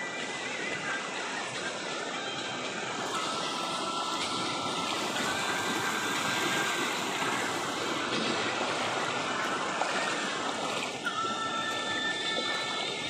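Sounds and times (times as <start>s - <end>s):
stream flowing over stones: 2.9s - 11.8s.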